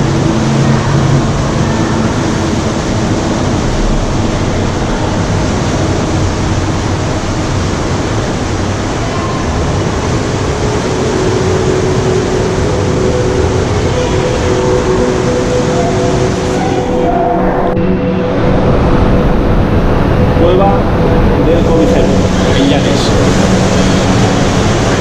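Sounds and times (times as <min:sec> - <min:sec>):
surf rushing in a sea cave: 0:00.0 - 0:25.0.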